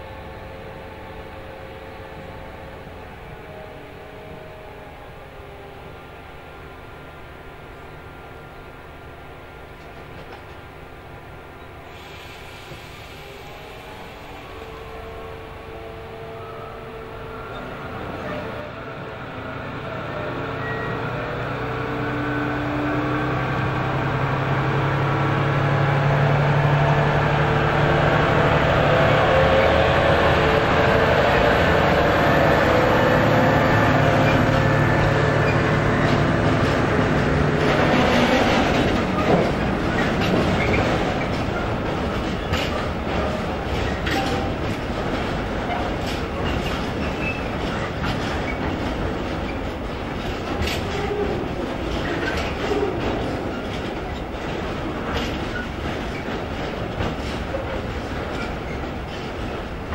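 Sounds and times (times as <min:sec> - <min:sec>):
diesel locomotive engine hum: 0:00.0 - 0:59.9
train wheels rumbling: 0:00.0 - 0:59.9
wheels knocking over rail joints: 0:36.0 - 0:59.9.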